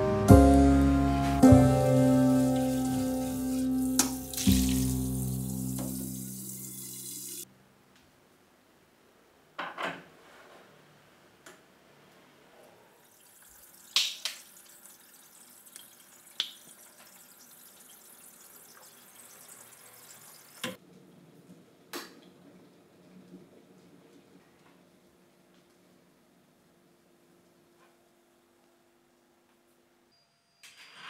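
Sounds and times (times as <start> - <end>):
tap water running into kettle: 2.4 - 7.4, 13.1 - 20.8.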